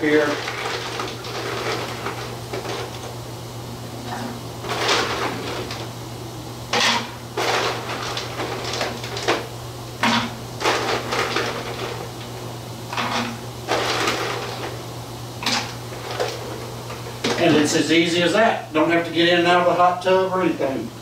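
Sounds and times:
ice cubes rattling: 0:00.0 - 0:03.1, 0:04.6 - 0:05.9, 0:06.7 - 0:12.1, 0:12.9 - 0:14.8
steady low hum: 0:00.0 - 0:21.0.

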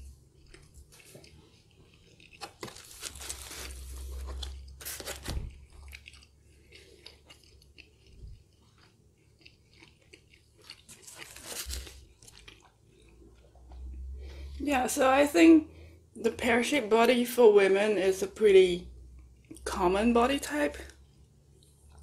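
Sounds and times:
chewing pizza crust: 0:00.0 - 0:14.6.

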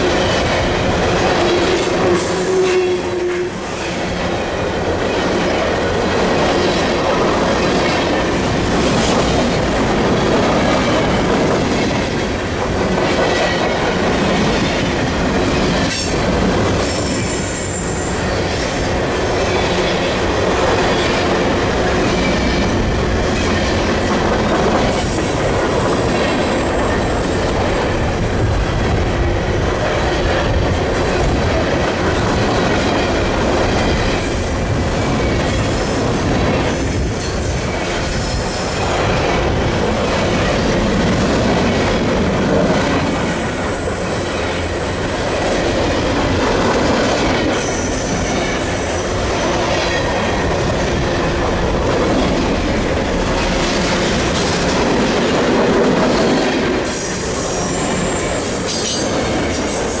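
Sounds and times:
train cars rumbling past: 0:00.0 - 1:00.0
steel wheel squeal: 0:56.9 - 1:00.0.

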